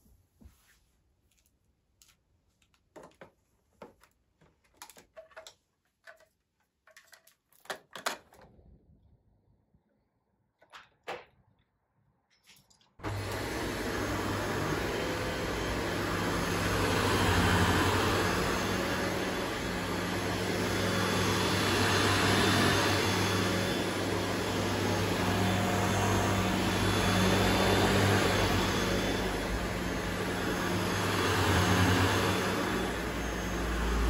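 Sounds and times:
vacuum cleaner running on carpet: 13.0s - 34.0s.

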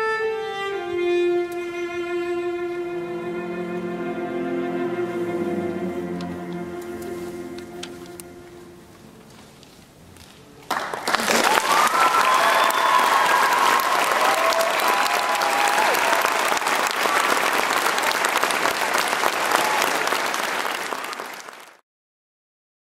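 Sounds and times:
audience applauding: 10.6s - 21.8s
drawn-out cheers: 11.3s - 17.6s.

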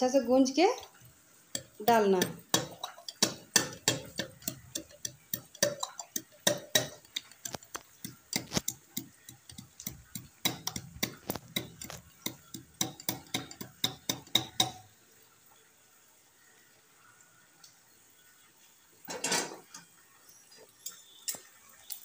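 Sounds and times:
wooden pestle pounding in steel tumbler: 1.6s - 14.8s.

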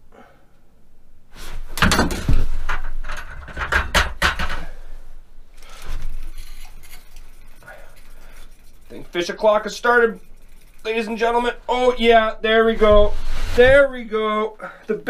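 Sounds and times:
clattering knocks and thumps: 1.7s - 4.8s
fishing reel clicking: 5.6s - 11.6s.

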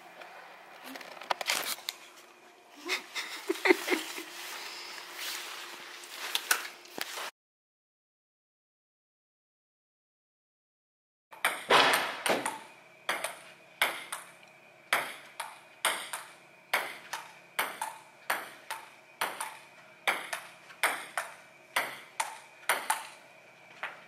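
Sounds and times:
ping-pong ball clicking: 14.9s - 23.2s.

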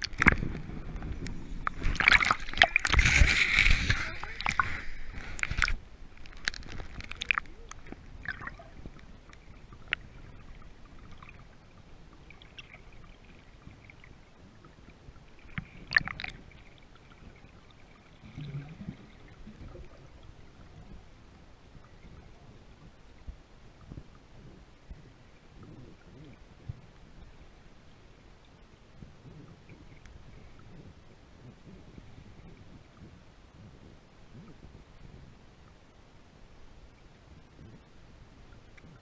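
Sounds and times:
sharp underwater clicks: 0.0s - 10.3s, 15.4s - 16.4s
muffled underwater hiss: 0.0s - 39.0s.

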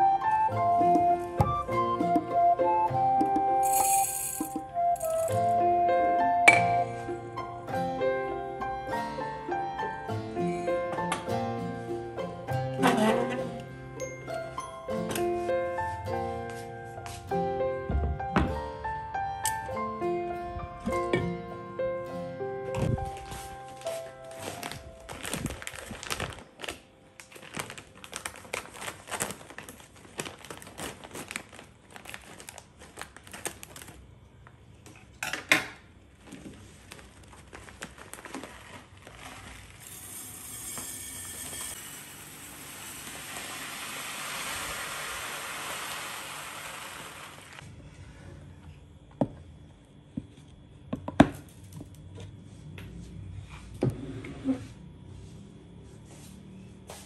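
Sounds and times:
rice pouring into jar: 3.6s - 5.1s, 38.2s - 47.6s
plastic bag crinkling: 22.8s - 34.1s, 36.2s - 40.4s.

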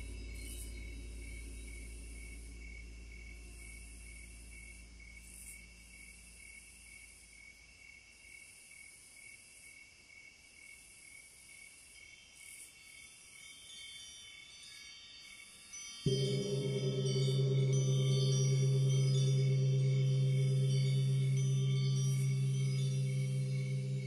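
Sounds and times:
low hum: 0.0s - 6.2s, 16.1s - 24.0s
insect-like chirping: 12.0s - 24.0s.

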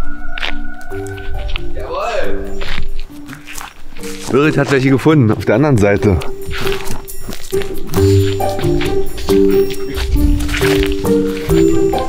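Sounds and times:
light beat: 0.8s - 12.0s
music with held chords: 6.1s - 12.0s.

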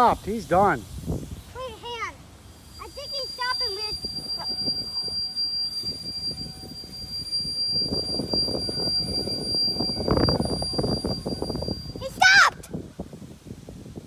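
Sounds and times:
steady high whine: 0.0s - 14.0s.

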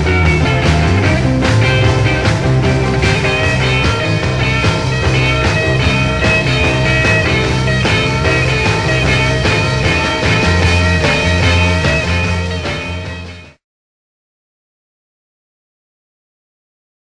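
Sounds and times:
rock music: 0.0s - 13.6s.

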